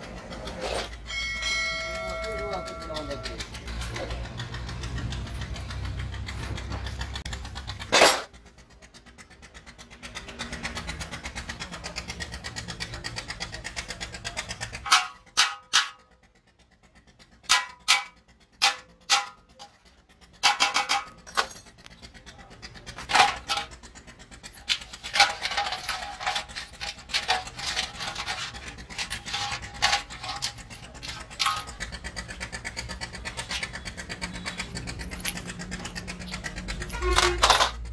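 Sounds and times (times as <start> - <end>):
low engine hum: 0.0 - 14.8, 21.1 - 37.9
metal parts clinking in a pan: 7.8 - 8.4, 14.5 - 16.2, 17.4 - 32.6, 33.2 - 37.9.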